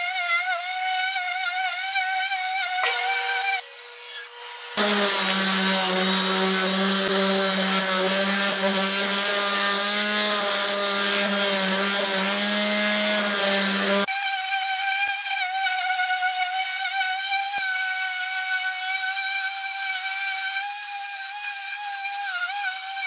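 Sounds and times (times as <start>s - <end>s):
orbital sander motor hum: 0.6s - 15.1s.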